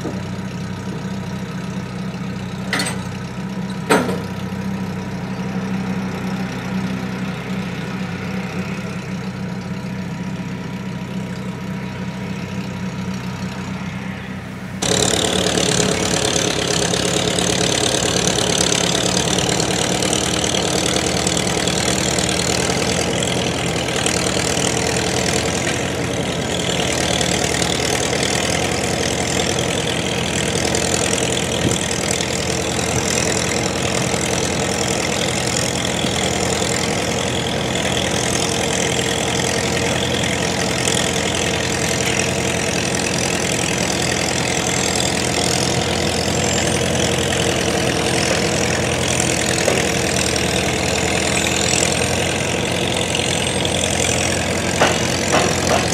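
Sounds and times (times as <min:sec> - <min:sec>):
tractor engines idling: 0:00.0 - 0:55.9.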